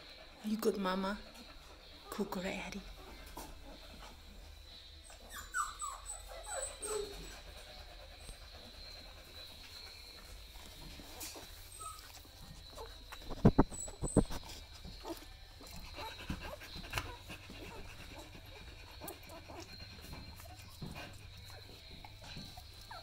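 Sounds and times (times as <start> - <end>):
puppies suckling and squeaking: 0.0 - 23.0.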